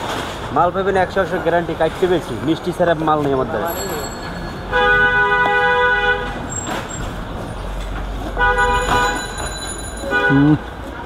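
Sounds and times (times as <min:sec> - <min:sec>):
street traffic: 0:00.0 - 0:11.0
vehicle horn blasts: 0:04.7 - 0:06.5, 0:08.4 - 0:10.6.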